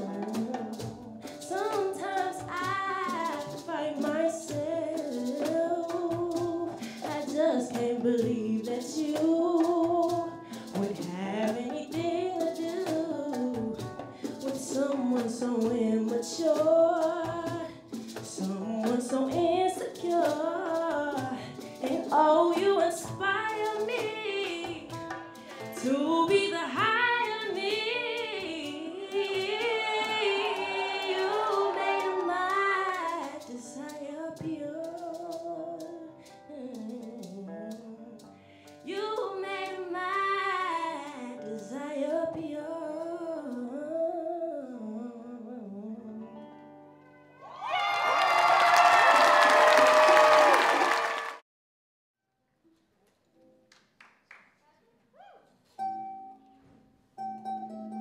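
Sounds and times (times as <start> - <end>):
light hand percussion: 0.0 - 42.5
woman singing: 0.0 - 46.4
acoustic guitar: 0.0 - 47.7, 55.4 - 58.0.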